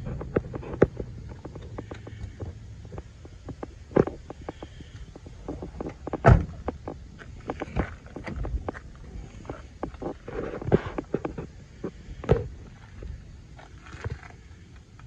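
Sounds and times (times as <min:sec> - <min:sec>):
footsteps: 0:00.0 - 0:14.6
car door shutting with thud: 0:06.2 - 0:06.7.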